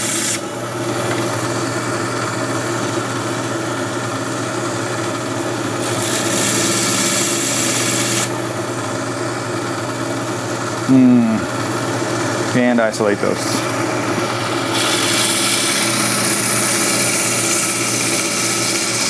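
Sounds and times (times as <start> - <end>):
band saw humming: 0.0 - 19.0
saw blade gritty rasp: 14.8 - 19.0.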